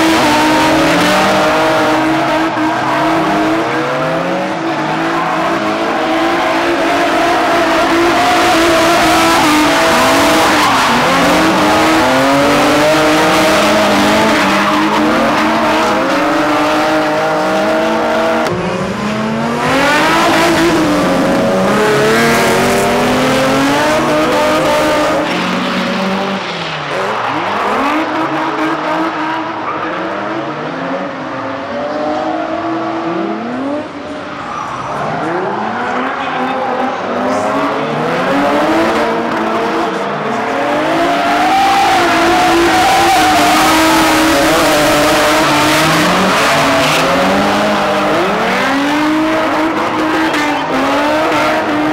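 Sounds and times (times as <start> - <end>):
tire squeal: 0.0 - 16.6, 34.1 - 37.1, 40.9 - 51.8
car engines revving: 0.0 - 51.9.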